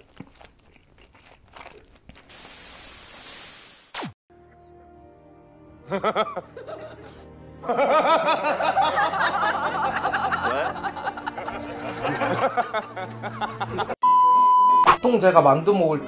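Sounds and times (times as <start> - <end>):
background music: 4.3 - 14.0, 14.8 - 16.0
man laughing loudly: 5.8 - 14.0.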